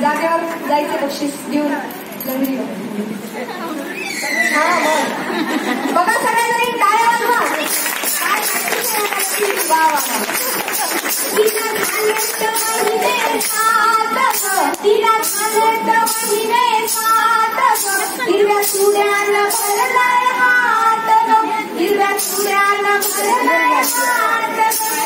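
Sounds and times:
sharp rhythmic beat: 7.2 - 20.2
woman singing into a microphone: 11.3 - 25.0.

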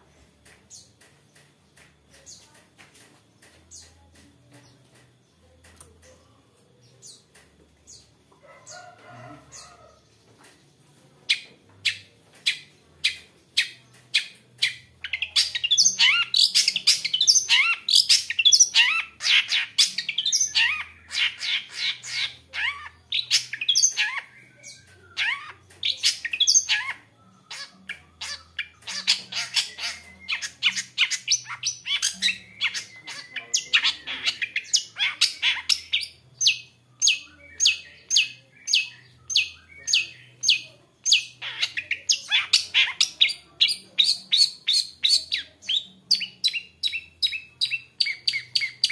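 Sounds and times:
bird singing chirps and trills: 11.3 - 48.9.

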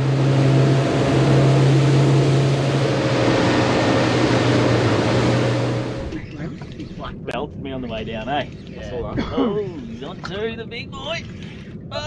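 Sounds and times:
wind and water rushing: 0.0 - 6.2
motorboat engine drone: 0.0 - 12.0.

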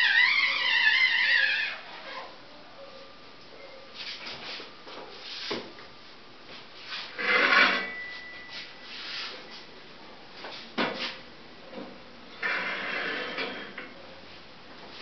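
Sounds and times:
wood scraping on wood: 6.9 - 8.0.

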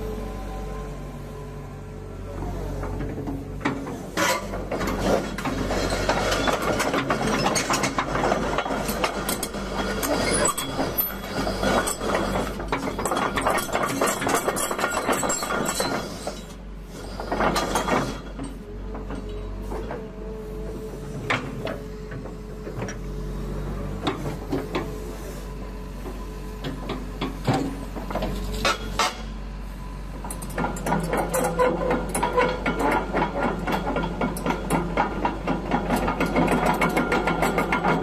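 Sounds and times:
excavator engine humming: 0.0 - 38.0
metal clanking and rattling: 3.0 - 16.4.

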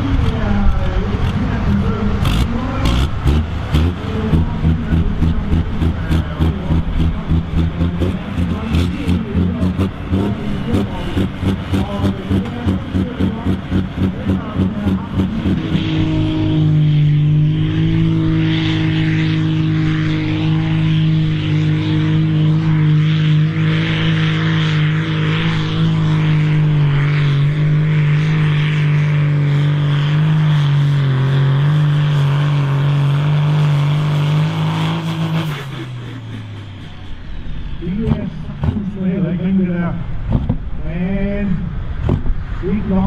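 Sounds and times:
tractor diesel engine at high revs: 0.0 - 41.2.

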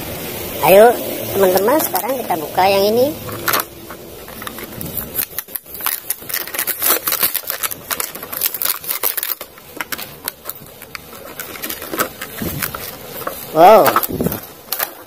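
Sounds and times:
plastic packaging crinkling: 3.2 - 15.0
card backing tearing: 3.3 - 15.0.

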